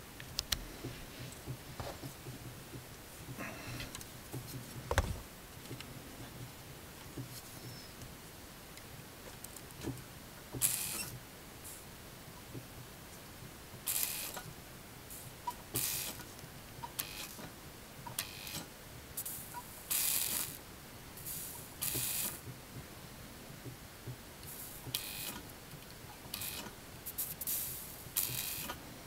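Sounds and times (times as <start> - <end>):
soldering sizzling hisses: 13.9 - 14.4, 19.2 - 20.6, 21.2 - 22.4, 26.4 - 28.7.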